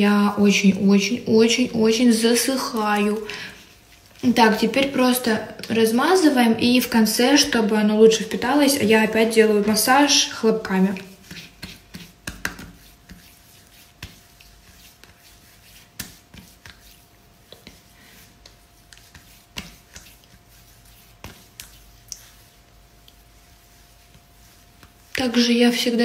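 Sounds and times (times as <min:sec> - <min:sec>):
hands patting face: 0:11.2 - 0:15.2, 0:15.8 - 0:23.2.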